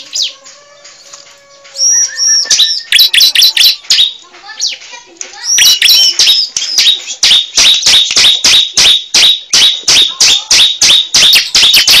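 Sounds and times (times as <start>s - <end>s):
bird calling high chip notes: 1.8s - 4.2s, 5.4s - 12.0s.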